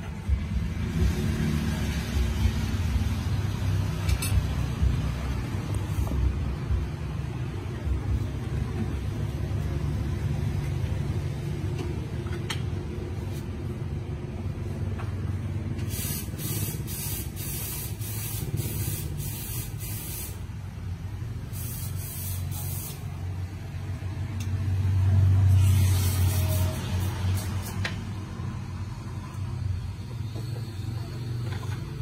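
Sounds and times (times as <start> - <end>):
pulsing spray hiss: 15.9 - 20.4, 21.5 - 23.0.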